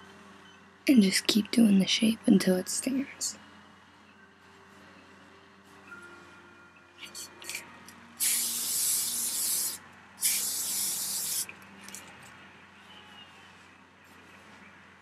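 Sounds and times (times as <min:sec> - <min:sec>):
hairspray hissing: 0:08.2 - 0:11.5.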